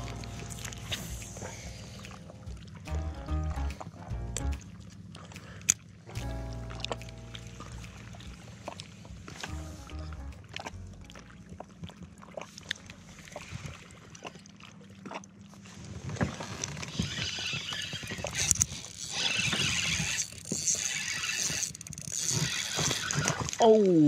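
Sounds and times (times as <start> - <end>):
water splashing around kayak: 0.0 - 23.8
gear knocks and clicks: 16.5 - 23.7.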